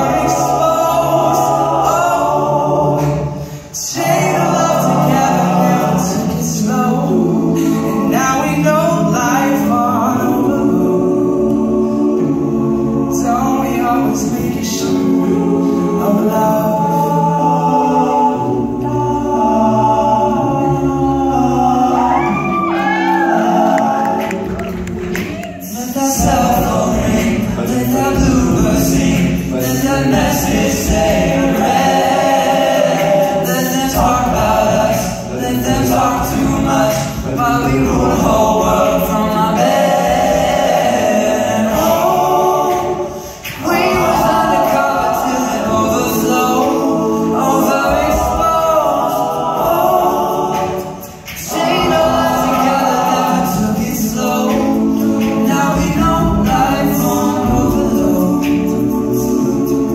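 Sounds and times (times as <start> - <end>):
male a cappella group singing: 0.0 - 59.9.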